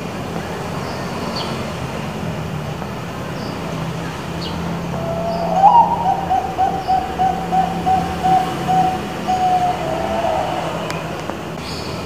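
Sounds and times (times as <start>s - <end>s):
dove cooing: 4.9s - 11.2s.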